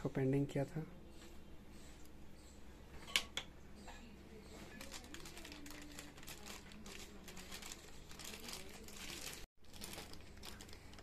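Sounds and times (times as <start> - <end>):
plastic bag crinkling: 4.6 - 11.0.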